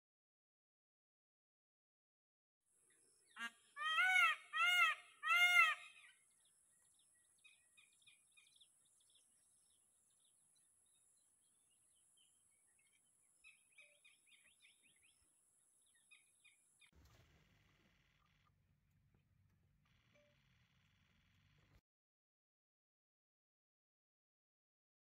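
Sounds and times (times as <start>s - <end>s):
loud bird call: 3.4s - 6.2s
faint small bird chirps: 5.4s - 18.6s, 19.9s - 21.8s.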